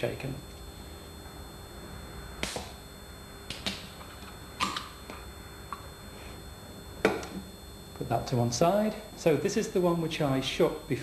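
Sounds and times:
drink can cracking open: 4.6s - 4.9s.

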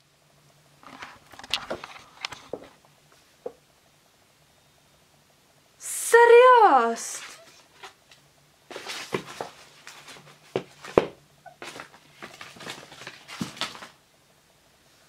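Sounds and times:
package rustling and crinkling: 8.7s - 14.0s.

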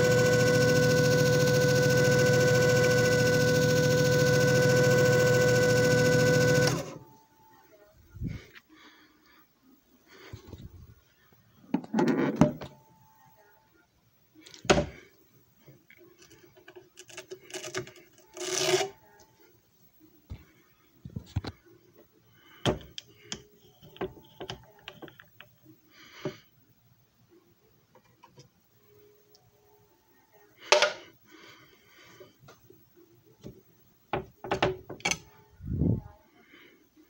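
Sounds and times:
machine low hum: 0.0s - 8.9s.

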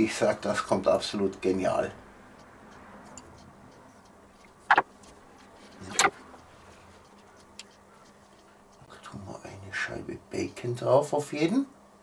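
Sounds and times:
handling scrapes and rustles: 3.1s - 8.8s.

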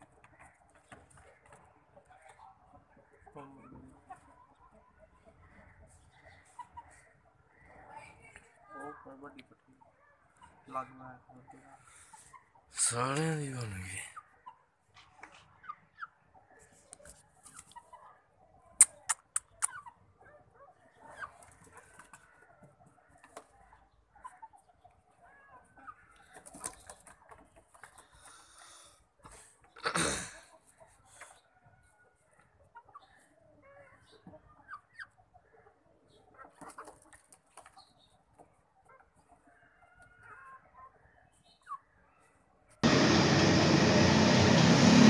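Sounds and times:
chickens clucking: 0.0s - 42.8s
sharp clicks: 18.8s - 19.8s.

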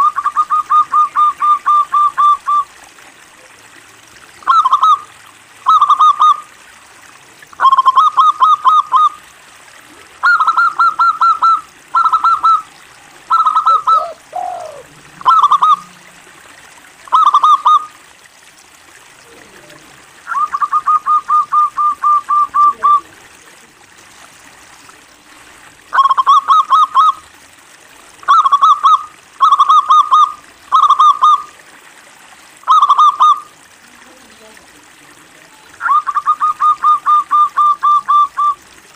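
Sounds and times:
dove trilled cooing: 0.0s - 2.7s, 4.4s - 5.1s, 7.6s - 9.2s, 10.2s - 16.2s, 19.4s - 23.2s, 28.3s - 31.5s, 32.6s - 33.5s, 35.8s - 38.6s.

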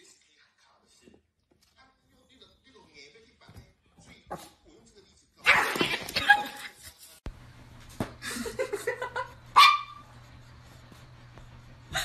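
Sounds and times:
dog barking: 9.6s - 10.0s.

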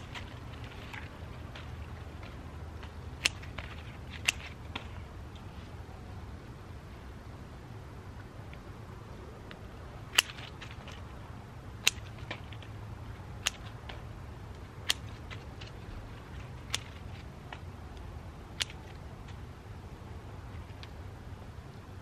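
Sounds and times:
scissors snipping stems: 0.0s - 5.5s, 9.5s - 11.2s, 11.8s - 19.4s.

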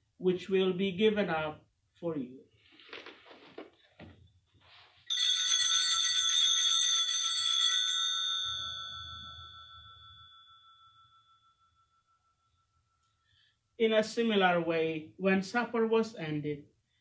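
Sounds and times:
altar bell ringing: 5.1s - 13.0s.

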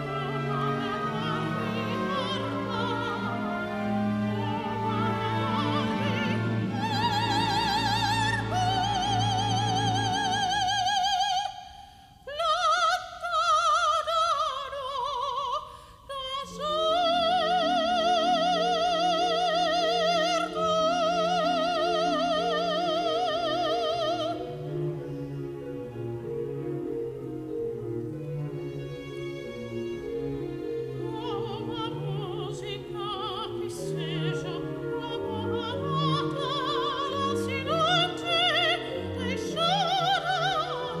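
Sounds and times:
symphony orchestra playing: 0.0s - 10.8s, 16.5s - 41.0s
operatic soprano singing: 0.0s - 41.0s.

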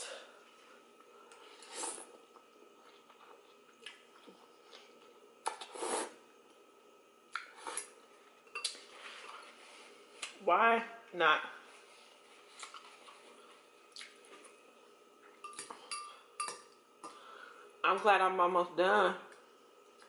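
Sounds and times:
slurping noodles: 1.6s - 2.2s, 5.5s - 6.2s.

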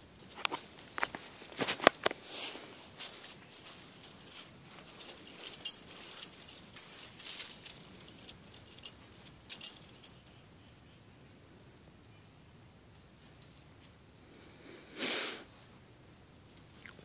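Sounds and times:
leaves rustling: 0.5s - 9.6s.

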